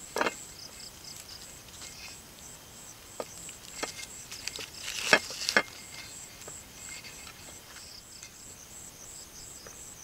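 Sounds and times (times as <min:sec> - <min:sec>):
leaf rustling: 0:00.0 - 0:08.6
crickets chirping: 0:00.0 - 0:10.0
metal spoon scraping a plate: 0:03.7 - 0:07.6.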